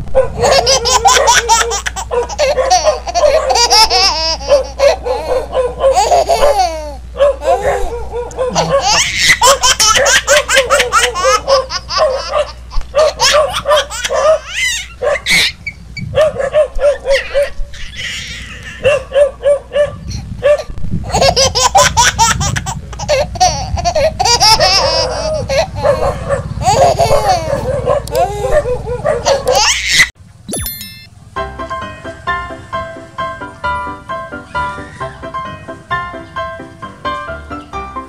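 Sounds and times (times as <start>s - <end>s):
baby giggling: 0.4s - 12.1s, 21.1s - 25.8s, 26.6s - 30.0s.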